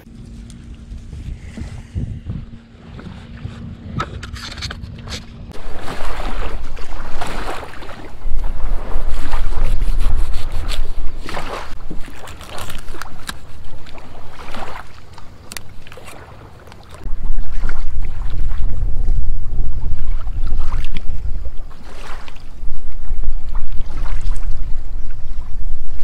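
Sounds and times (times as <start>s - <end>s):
wind rumble on microphone: 0.0s - 15.6s, 17.0s - 26.0s
knife rasping on fish: 9.3s - 11.2s.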